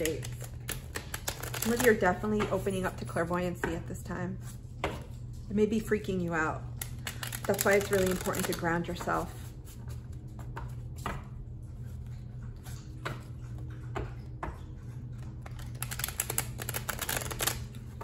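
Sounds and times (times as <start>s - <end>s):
cards being shuffled: 0.0s - 2.6s, 6.8s - 11.2s, 15.4s - 18.0s
steady low hum: 0.0s - 18.0s.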